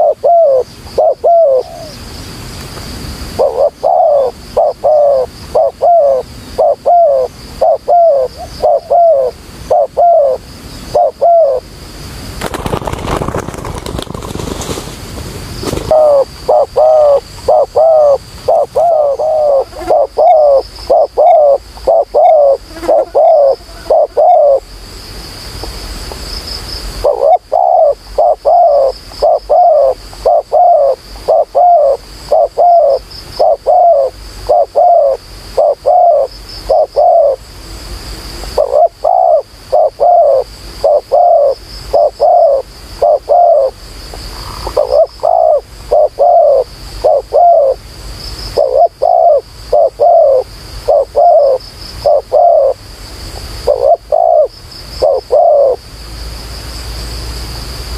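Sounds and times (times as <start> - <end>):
dove cooing: 0.0 - 2.0, 3.4 - 11.7, 15.7 - 24.6, 27.0 - 37.4, 38.5 - 47.8, 48.6 - 52.8, 53.6 - 55.8.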